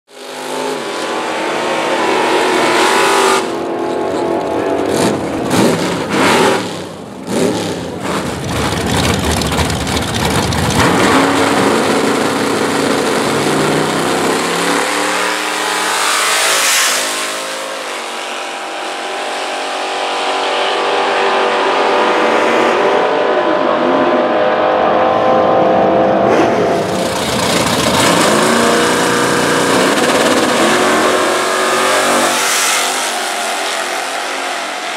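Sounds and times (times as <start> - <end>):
engines revving and idling: 0.1 - 34.9
tyres spinning in burnout: 8.0 - 15.2.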